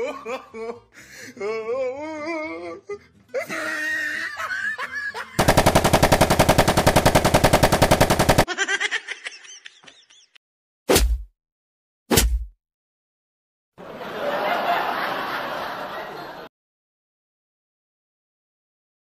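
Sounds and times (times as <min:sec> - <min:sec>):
machine gun automatic burst: 0:05.4 - 0:08.5.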